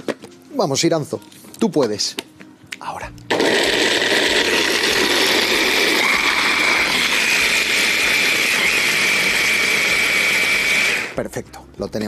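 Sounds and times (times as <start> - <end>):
stick blender motor whine: 3.3 - 11.2.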